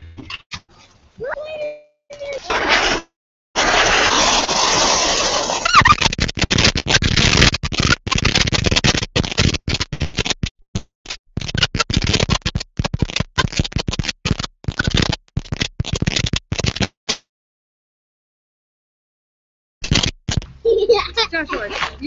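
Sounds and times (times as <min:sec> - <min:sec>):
firework fountain hissing crackle: 0:03.6 - 0:06.0.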